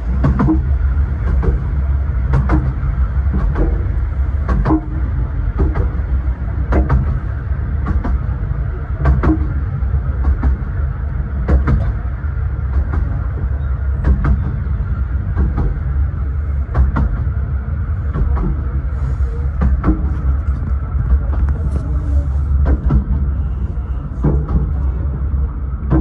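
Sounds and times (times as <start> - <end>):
train wheels rumbling on rail: 0.0 - 26.0.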